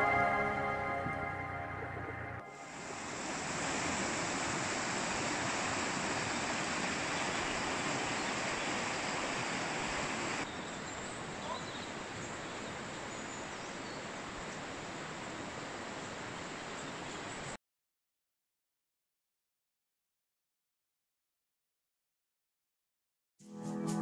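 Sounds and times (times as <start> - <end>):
river rushing over rocks: 2.6 - 10.5.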